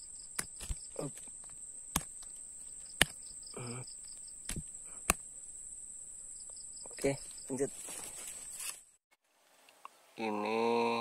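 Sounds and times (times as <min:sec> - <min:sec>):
insects droning: 0:00.0 - 0:09.0
short grunt-like sound: 0:03.6 - 0:03.9.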